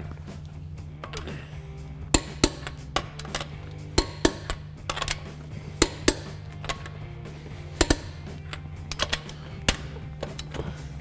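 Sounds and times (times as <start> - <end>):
socket clinking on nuts: 1.0 - 1.4, 2.1 - 7.1, 7.7 - 10.8
torque wrench clicking: 1.0 - 1.4, 2.1 - 11.0.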